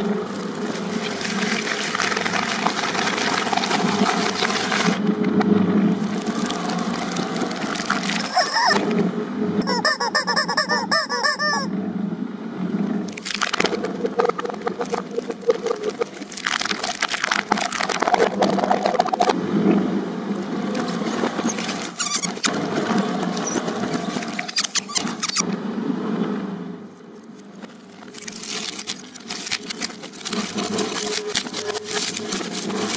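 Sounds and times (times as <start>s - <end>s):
shredder grinding toys: 0.0s - 5.0s, 6.0s - 9.0s, 20.6s - 25.4s, 27.9s - 32.9s
machine hum: 0.0s - 9.8s, 11.7s - 32.9s
rubber chickens squawking: 7.8s - 9.0s, 9.6s - 11.7s, 20.8s - 22.6s, 23.2s - 25.4s
sharp plastic cracks: 27.5s - 32.9s.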